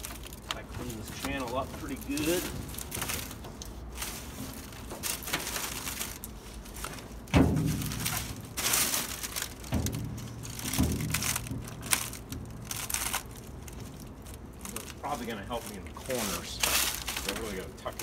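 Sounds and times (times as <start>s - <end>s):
rubber gasket scuffing and rustling: 0.0s - 18.0s
dull thumps against metal cab: 7.3s - 8.5s.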